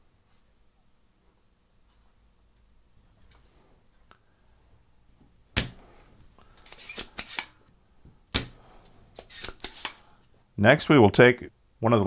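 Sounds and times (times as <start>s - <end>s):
scratchy clicks and air noise: 8.4s - 10.1s.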